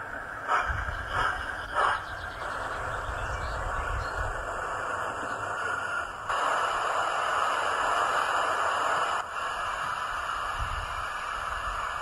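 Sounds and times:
steam hiss from small speaker: 0:04.3 - 0:12.0.

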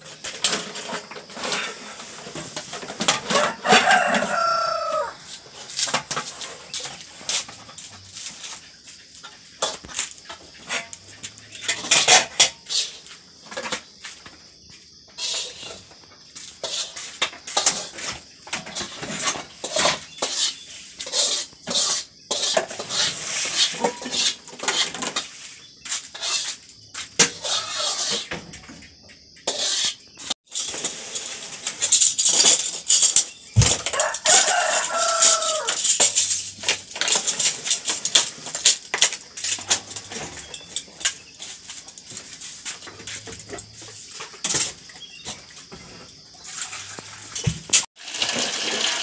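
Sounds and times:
pots and dishes clattering: 0:00.0 - 0:04.5, 0:05.6 - 0:08.6, 0:09.2 - 0:14.3, 0:16.5 - 0:25.4, 0:29.5 - 0:49.0
rooster crowing: 0:03.3 - 0:05.4, 0:33.6 - 0:35.8.

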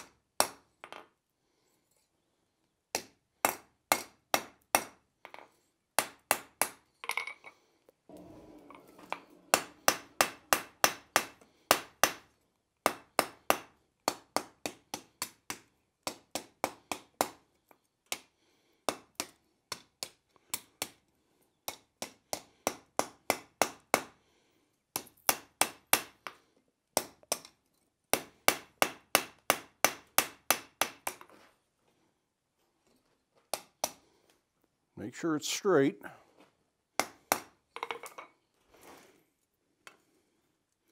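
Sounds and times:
hammer striking steel on anvil: 0:08.1 - 0:12.2.

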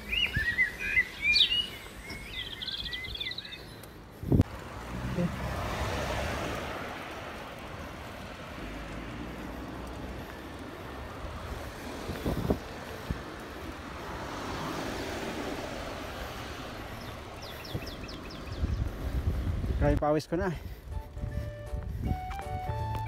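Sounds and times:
van passing by: 0:00.0 - 0:20.0
road noise: 0:00.0 - 0:23.0
wind on microphone: 0:11.1 - 0:20.0, 0:20.6 - 0:23.0.

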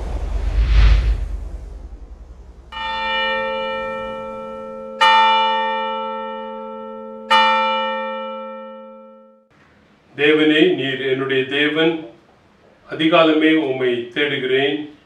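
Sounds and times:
church bell tolling: 0:02.3 - 0:09.5.

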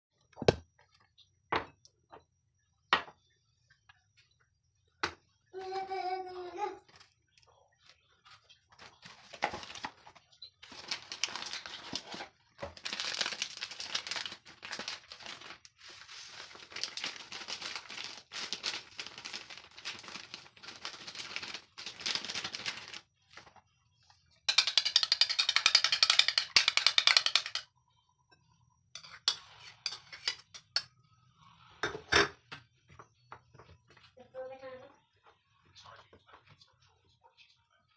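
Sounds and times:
plastic bag crinkling: 0:10.6 - 0:23.1.

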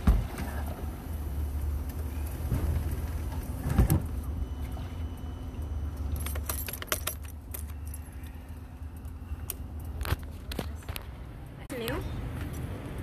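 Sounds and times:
keys jangling: 0:06.1 - 0:08.1.

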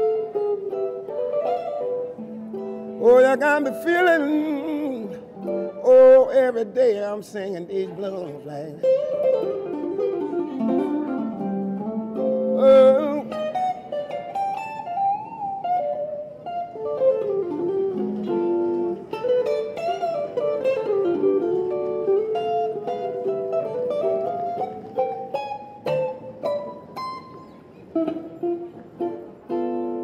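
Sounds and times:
electric guitar blues lead: 0:00.0 - 0:30.0
man singing raspy: 0:03.0 - 0:09.0, 0:12.5 - 0:13.5.

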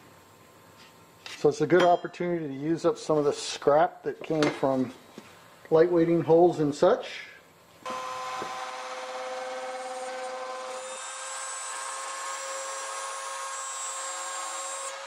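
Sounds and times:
router spindle whine: 0:07.9 - 0:15.0.

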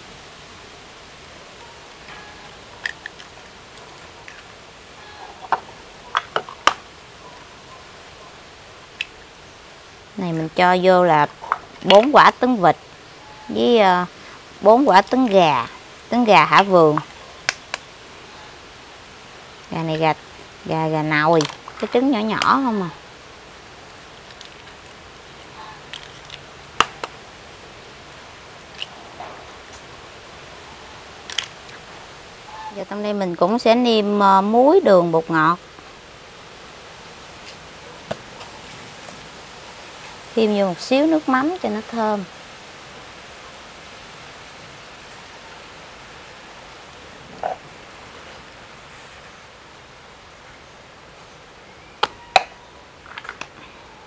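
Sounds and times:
steady low hiss: 0:00.0 - 0:54.0
eggshells cracking on bowl: 0:02.8 - 0:04.5.

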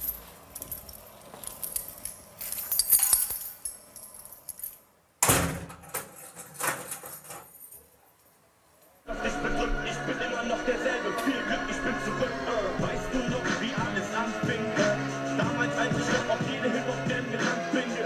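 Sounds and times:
keys jangling: 0:00.0 - 0:04.8
steel cell door slamming: 0:05.2 - 0:07.5.

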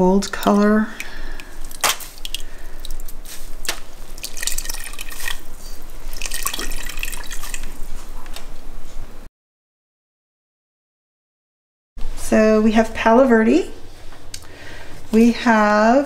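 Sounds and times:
liquid dripping into pot: 0:00.2 - 0:07.9.

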